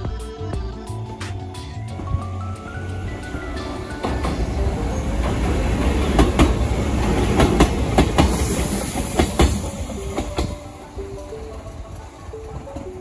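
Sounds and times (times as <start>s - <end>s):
train rumbling over bridge: 0.9s - 13.0s
train wheels clacking over rail joints: 5.2s - 10.7s.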